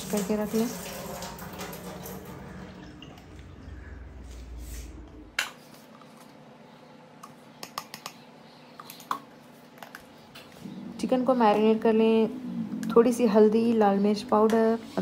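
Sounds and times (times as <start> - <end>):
tap water running into sink: 0.0 - 3.6.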